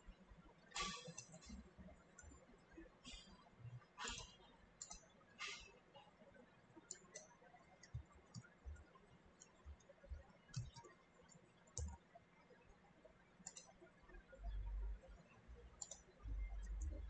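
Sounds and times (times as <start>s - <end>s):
mouse clicks: 0.7s - 1.6s, 4.0s - 5.7s, 10.5s - 11.0s, 11.7s - 12.0s, 13.4s - 13.8s, 15.8s - 17.0s
computer keyboard clicks: 0.8s - 1.4s, 4.0s - 5.6s, 6.9s - 12.0s, 13.4s - 13.8s, 15.8s - 17.0s.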